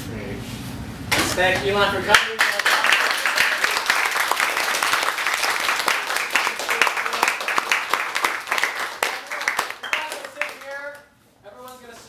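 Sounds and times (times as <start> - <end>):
audience applauding: 2.1 - 11.0.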